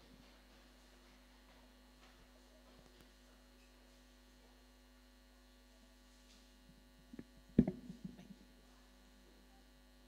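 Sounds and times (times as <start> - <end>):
electrical mains hum: 0.0 - 10.0
sharp thump on microphone: 7.2 - 8.4.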